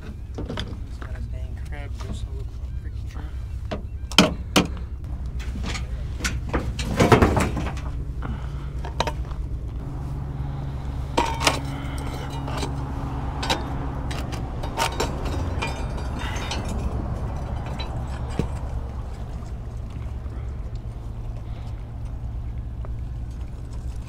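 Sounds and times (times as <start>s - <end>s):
steady low rumble: 0.0s - 24.0s
fishing gear knocking and clinking: 11.1s - 24.0s.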